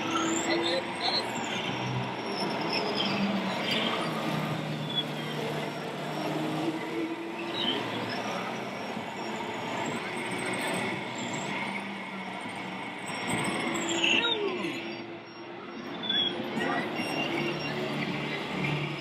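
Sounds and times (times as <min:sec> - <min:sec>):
small motors humming and whining: 0:00.0 - 0:19.0.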